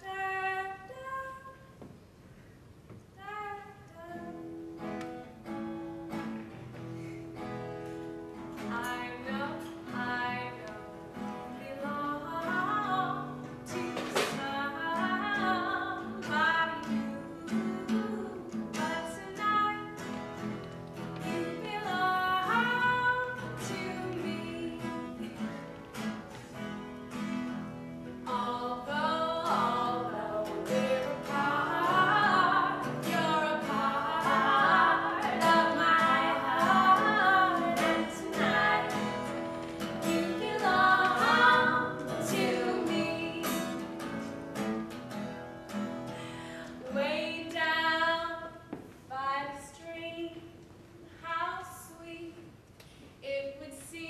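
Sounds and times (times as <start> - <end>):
woman singing: 0.0 - 1.7, 3.2 - 4.6, 8.6 - 20.1, 21.2 - 25.7, 28.2 - 44.0, 46.8 - 50.6, 51.2 - 52.4, 53.2 - 54.0
acoustic guitar: 0.0 - 54.0.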